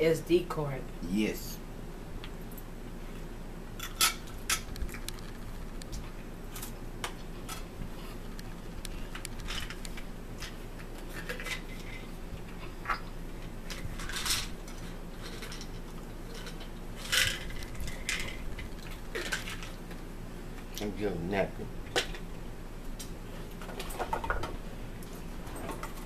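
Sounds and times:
crackers being chewed: 0:04.5 - 0:07.4, 0:08.2 - 0:20.1.

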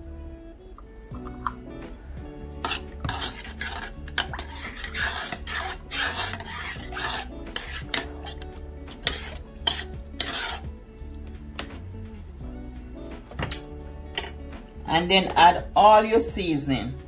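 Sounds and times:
metal spoon scraping a saucepan: 0:02.5 - 0:10.8, 0:13.4 - 0:14.4.

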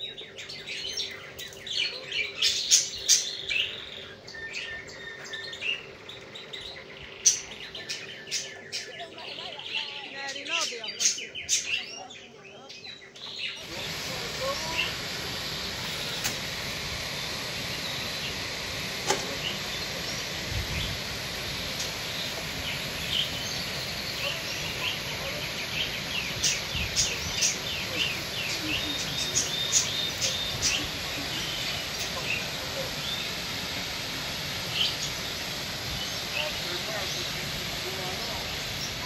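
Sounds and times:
small birds chirping: 0:00.0 - 0:39.0
waterfall rushing: 0:13.6 - 0:39.0
sharp click: 0:19.0 - 0:19.3.

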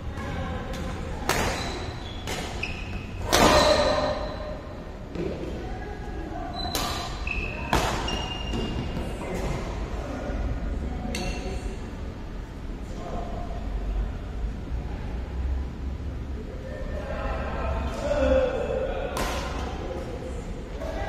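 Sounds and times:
rackets striking shuttlecock: 0:00.7 - 0:04.2
shoes squeaking on court: 0:01.4 - 0:04.4, 0:06.5 - 0:09.2.

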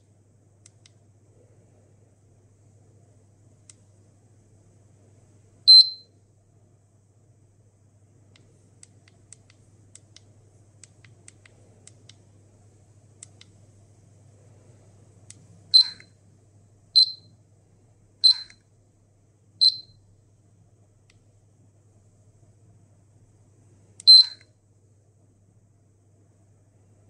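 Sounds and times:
faint irregular clicks: 0:00.0 - 0:01.1, 0:03.6 - 0:04.0, 0:08.3 - 0:12.3, 0:13.2 - 0:13.6
dosimeter beeps: 0:05.7 - 0:06.1, 0:15.7 - 0:16.2, 0:17.0 - 0:17.4, 0:18.2 - 0:18.6, 0:19.6 - 0:20.0, 0:24.0 - 0:24.5.

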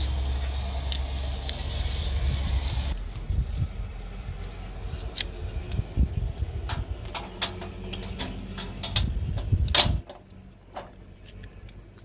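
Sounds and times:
low rumble: 0:00.0 - 0:11.8
metal door lock clicking and rattling: 0:07.2 - 0:10.2.

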